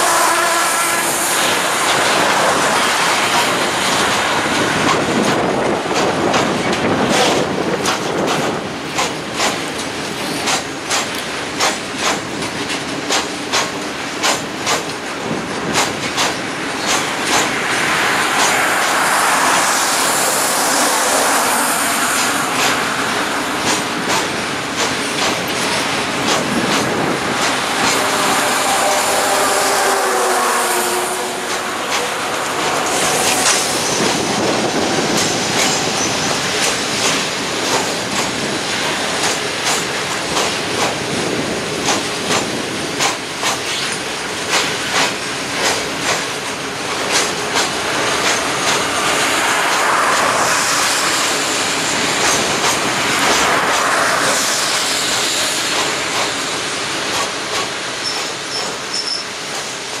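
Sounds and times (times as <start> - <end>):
wheel and rail rumble: 0.0 - 60.0
wheels clicking over rail joints: 1.8 - 17.6, 23.5 - 28.2, 31.4 - 48.9
wheel squeal: 58.0 - 59.4.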